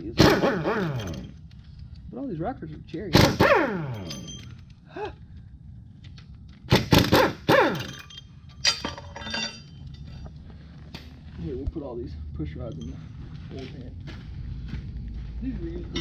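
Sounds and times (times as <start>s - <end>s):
metal engine parts clanking: 0.0s - 1.6s, 2.9s - 4.7s, 6.8s - 11.0s.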